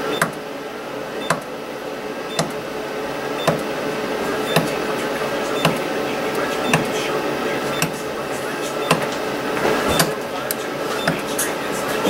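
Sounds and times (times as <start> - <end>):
spot welder snapping: 0.0 - 0.4, 1.2 - 1.5, 2.3 - 2.6, 3.4 - 3.8, 5.5 - 7.0, 8.8 - 11.6
steady hum: 0.0 - 12.0.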